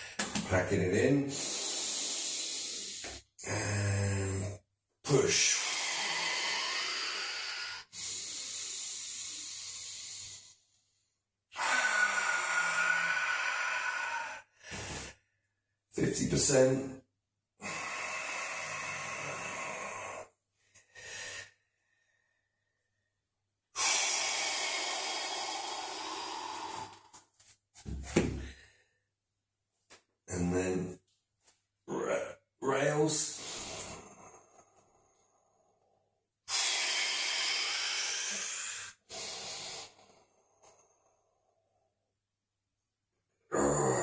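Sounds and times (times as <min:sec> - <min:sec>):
man breathing hard: 0:01.3 - 0:03.2, 0:05.5 - 0:10.6, 0:11.6 - 0:15.3, 0:17.6 - 0:22.6, 0:23.8 - 0:29.0, 0:33.3 - 0:41.7.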